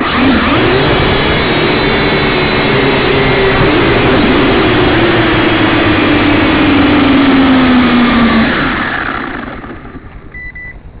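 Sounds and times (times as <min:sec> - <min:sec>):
drone motors and propellers whirring: 0:00.0 - 0:11.0.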